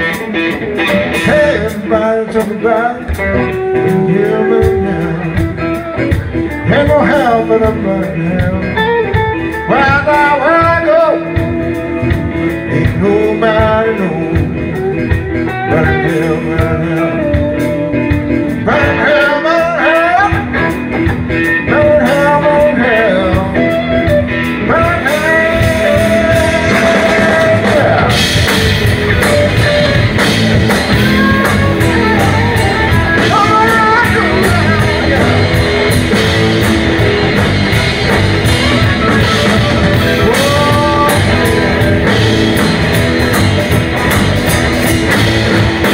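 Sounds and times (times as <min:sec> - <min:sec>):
bass: 0:00.0 - 0:45.9
drums: 0:00.0 - 0:45.9
keyboard: 0:00.0 - 0:45.9
lead electric guitar bending notes: 0:00.0 - 0:45.9.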